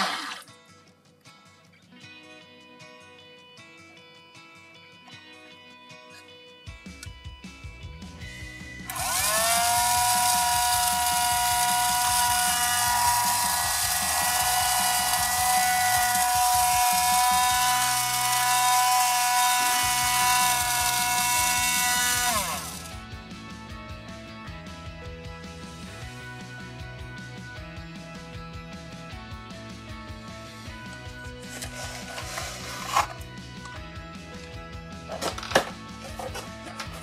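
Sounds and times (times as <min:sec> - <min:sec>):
quiet background music: 0:00.0 - 0:37.0
toy battery motor whirring: 0:08.8 - 0:23.0, 0:31.5 - 0:33.2.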